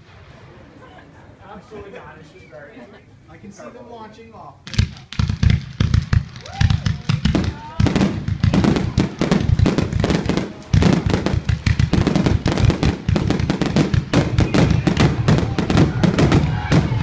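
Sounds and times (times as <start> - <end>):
fireworks bursting and crackling: 4.6 - 17.0.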